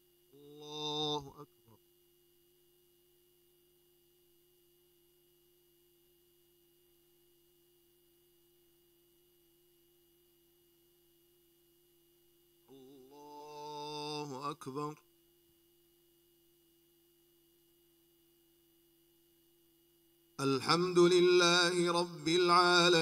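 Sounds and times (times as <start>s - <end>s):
faint steady hum: 0.0s - 23.0s
man chanting: 0.4s - 1.8s, 12.7s - 15.0s, 20.4s - 23.0s.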